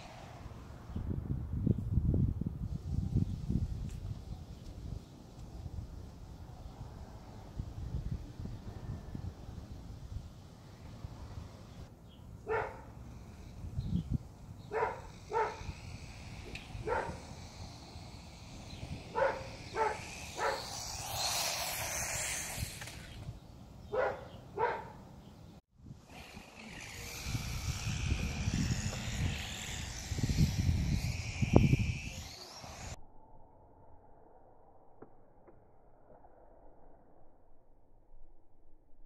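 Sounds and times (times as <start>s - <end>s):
rushing noise: 0.0s - 0.9s, 12.8s - 23.3s, 26.1s - 33.0s
dog barking: 12.5s - 12.8s, 14.7s - 15.6s, 16.9s - 17.2s, 19.2s - 20.6s, 23.9s - 25.0s.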